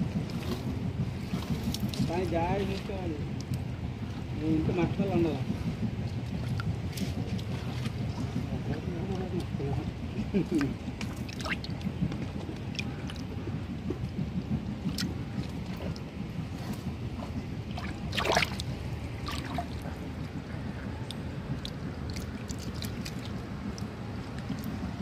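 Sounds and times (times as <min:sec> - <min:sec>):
water sloshing and gurgling: 0:00.0 - 0:25.0
small drips and splashes: 0:00.2 - 0:04.4, 0:10.4 - 0:16.1, 0:17.2 - 0:20.3, 0:21.0 - 0:25.0
loud splash: 0:17.7 - 0:20.0.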